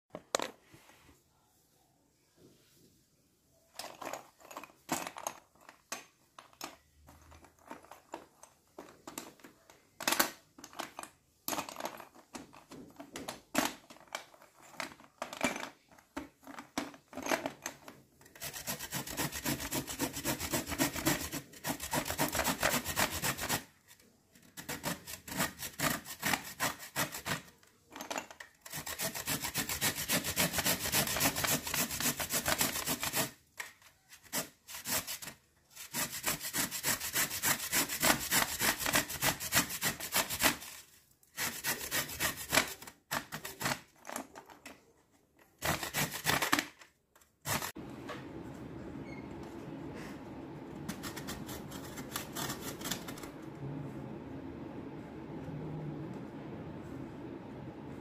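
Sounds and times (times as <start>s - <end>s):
taps and scrapes: 3.8s - 48.3s, 50.8s - 53.4s
chalk scraping on metal grater: 18.3s - 23.7s, 24.5s - 27.6s, 28.6s - 33.4s, 34.1s - 43.7s, 45.6s - 46.5s, 47.5s - 47.8s, 50.9s - 53.2s.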